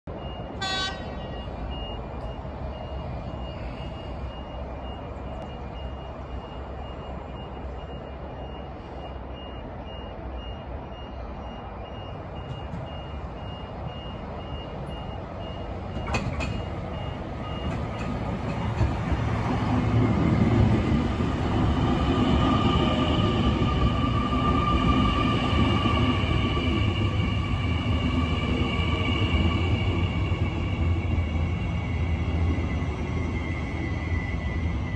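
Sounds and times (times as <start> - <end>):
faint high beep: 0.1 - 17.7
electric train rumble: 0.1 - 34.9
train whine: 0.1 - 34.9.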